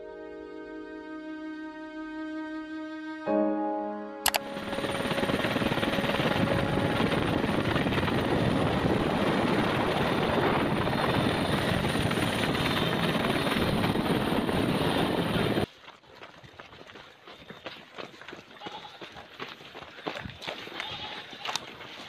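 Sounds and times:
short click: 4.2s - 4.4s
helicopter running: 4.2s - 15.7s.

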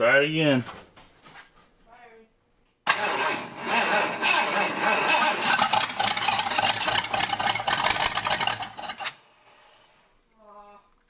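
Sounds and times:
engine cranking on starter: 2.9s - 9.2s.

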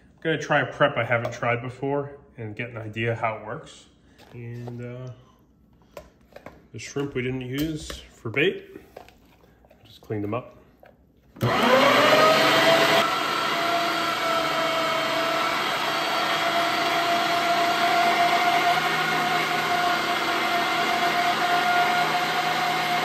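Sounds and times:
electric meat grinder motor whine: 11.4s - 23.0s.

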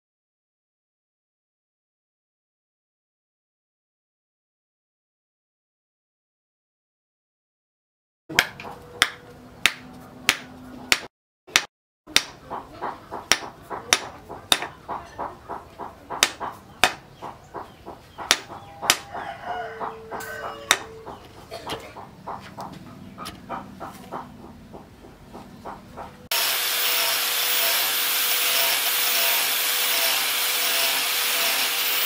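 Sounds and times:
chickens calling: 12.4s - 26.3s.

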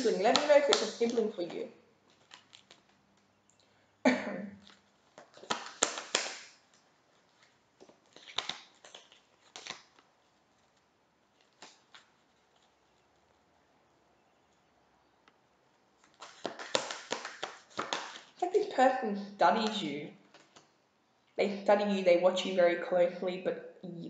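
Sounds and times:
cards being shuffled: 0.0s - 3.3s, 4.6s - 13.4s, 16.0s - 18.4s.

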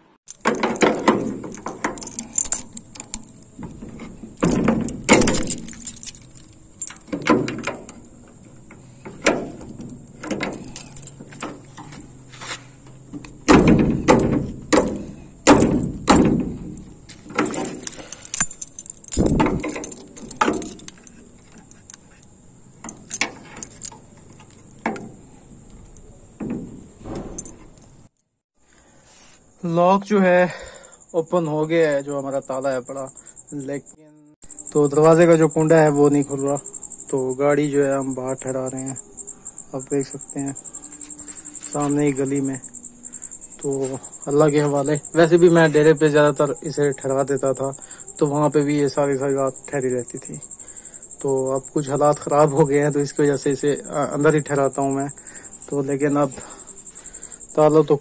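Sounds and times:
metal gate bolt knocking: 0.3s - 22.0s, 22.8s - 28.0s
padlock and keys rattling: 0.3s - 28.4s, 34.4s - 58.0s.

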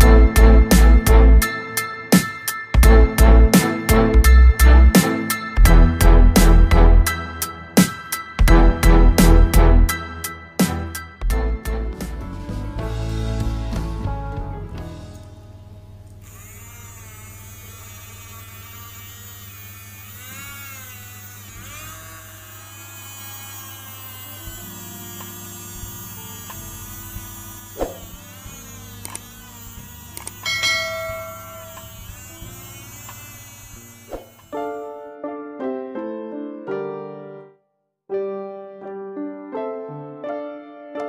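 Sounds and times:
small electric motor whining: 16.2s - 34.8s
sharp clicks: 30.2s - 30.4s.

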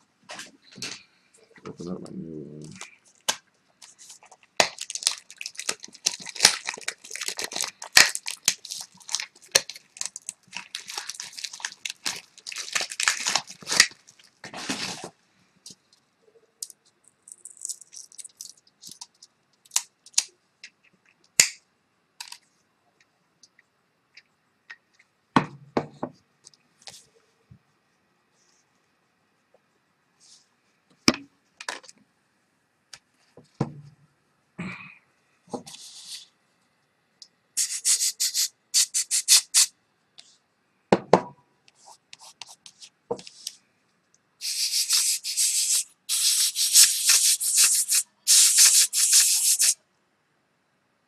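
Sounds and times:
packaging crackling and tearing: 4.0s - 15.0s.

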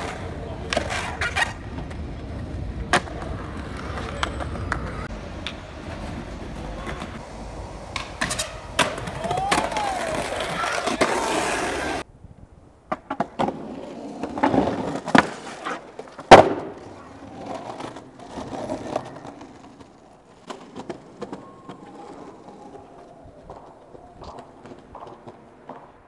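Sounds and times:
skateboard clacks and knocks: 0.0s - 12.0s, 12.9s - 22.7s
skateboard wheels rolling: 0.0s - 26.0s
loud skateboard impact: 2.8s - 12.0s, 12.9s - 17.1s.

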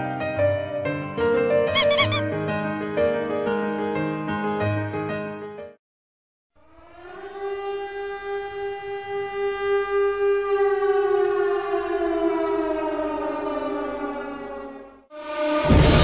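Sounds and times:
siren-like wail: 6.7s - 15.0s.

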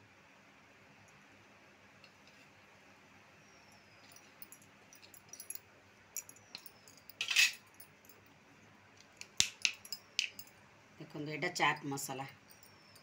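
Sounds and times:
steel bowls and plates clinking: 6.6s - 7.6s.

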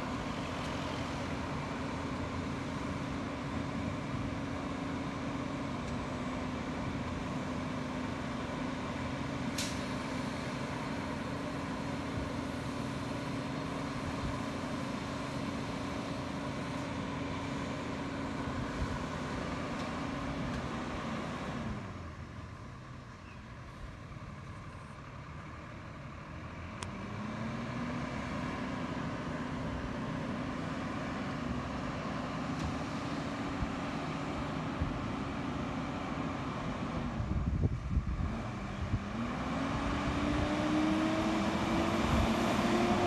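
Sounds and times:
garbage truck engine and hydraulics: 0.0s - 43.0s.

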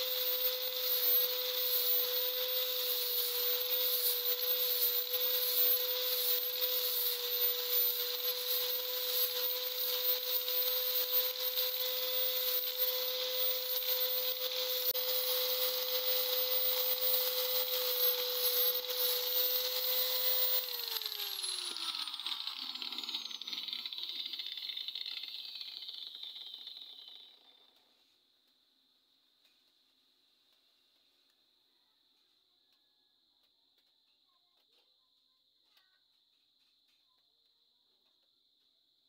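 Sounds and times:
angle grinder sanding: 0.0s - 27.7s.

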